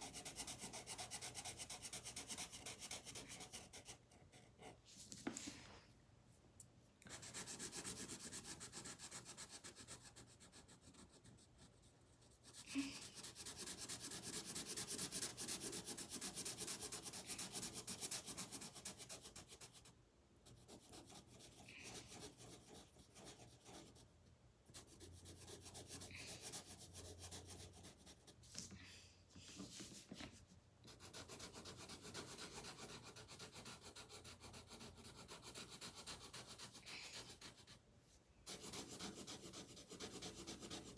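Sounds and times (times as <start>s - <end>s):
marker scratching on paper: 0.0s - 5.4s, 7.1s - 24.0s, 38.5s - 40.9s.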